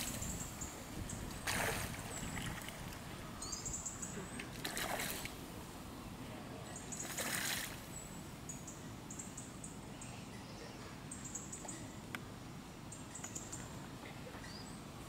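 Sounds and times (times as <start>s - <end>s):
duck splashing water: 1.3s - 3.0s, 4.4s - 5.4s, 7.0s - 7.8s.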